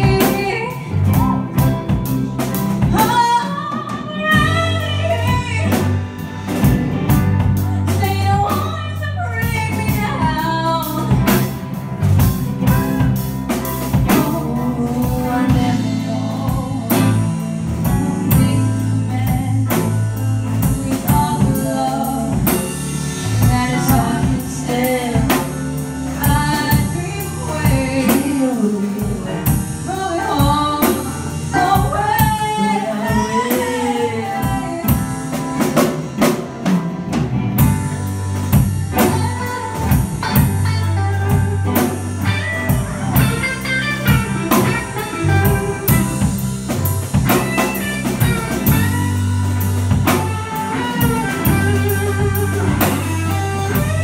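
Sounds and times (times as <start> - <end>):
lead singer singing: 0.0 - 11.5, 13.9 - 36.3
drum kit beat: 0.0 - 54.0
electric guitars: 0.0 - 54.0.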